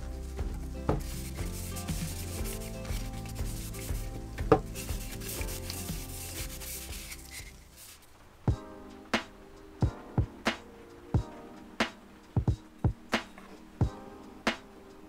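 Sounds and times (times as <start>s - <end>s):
background music: 0.0s - 15.0s
cloth swishing on wood: 0.9s - 8.1s.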